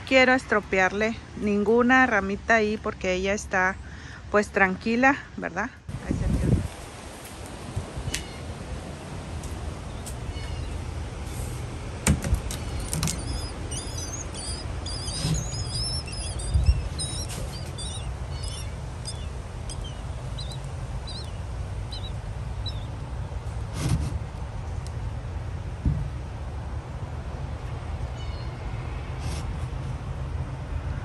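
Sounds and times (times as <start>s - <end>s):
nestlings cheeping: 12.3s - 23.1s.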